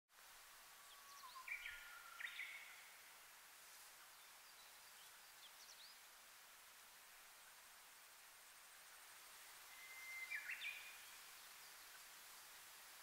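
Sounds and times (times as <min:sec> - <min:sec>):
steady background hiss: 0:00.1 - 0:13.0
bush warbler whistling song: 0:00.8 - 0:02.9, 0:09.5 - 0:11.9.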